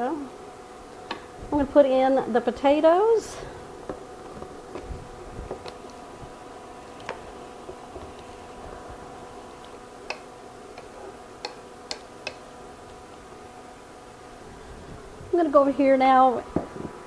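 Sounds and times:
induction cooktop hum: 0.0s - 17.0s.

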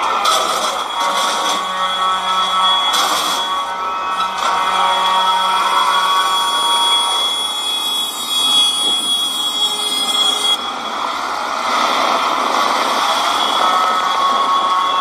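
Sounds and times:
high continuous tone: 0.0s - 15.0s
tractor engines driving past: 10.6s - 15.0s.

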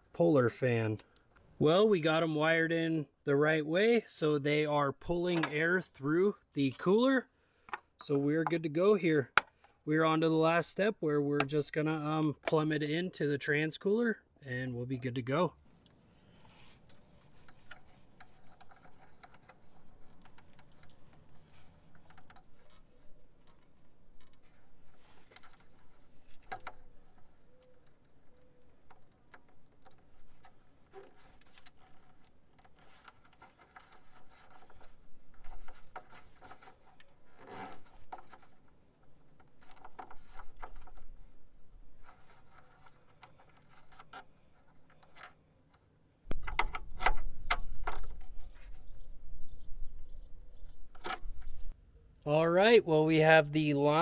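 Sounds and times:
rubber hose scraping on metal: 16.1s - 45.2s.

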